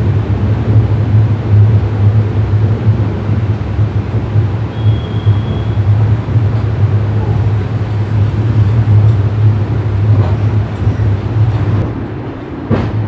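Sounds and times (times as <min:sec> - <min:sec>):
train wheels rumbling on track: 0:00.0 - 0:13.0
faint track clacks: 0:05.1 - 0:13.0.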